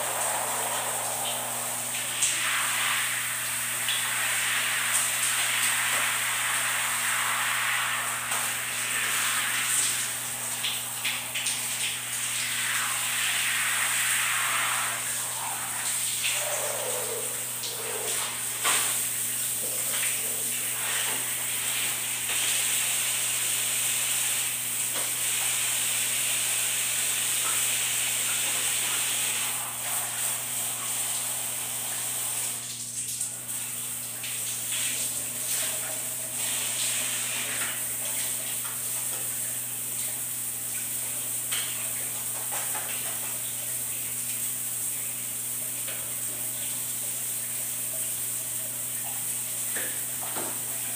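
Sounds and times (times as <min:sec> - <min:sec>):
shower spray hissing: 0:00.0 - 0:50.9.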